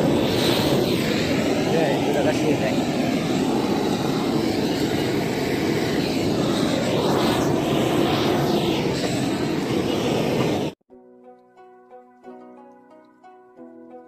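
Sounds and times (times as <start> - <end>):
blowtorch flame roaring: 0.0 - 10.8.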